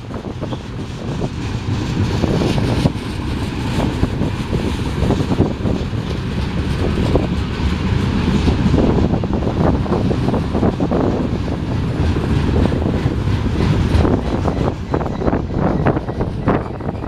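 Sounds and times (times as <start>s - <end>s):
train clicks and clanks: 0.0s - 17.0s
train wheels rumbling on rail: 0.0s - 17.0s.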